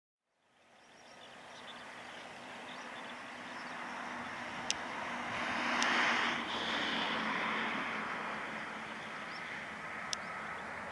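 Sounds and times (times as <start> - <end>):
jet engines rushing: 1.8 - 10.9
sharp ticks: 4.6 - 4.8, 5.8 - 6.0, 10.1 - 10.3.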